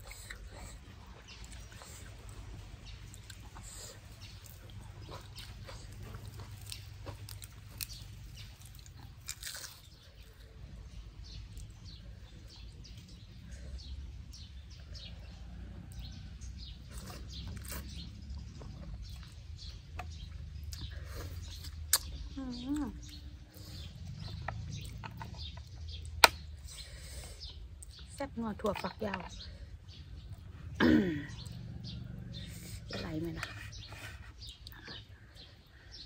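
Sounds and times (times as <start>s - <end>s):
person chewing food: 0.0s - 15.1s, 15.8s - 28.1s.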